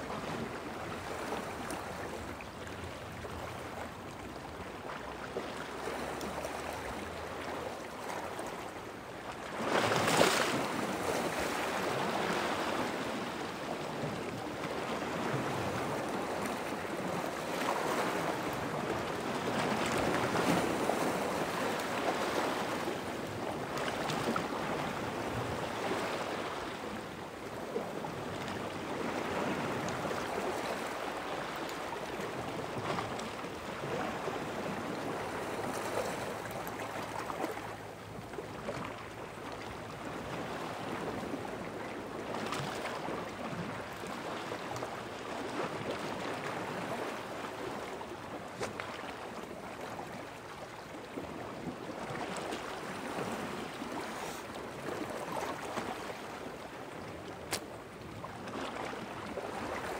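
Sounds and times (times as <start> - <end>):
sea waves washing in: 52.0 - 57.6.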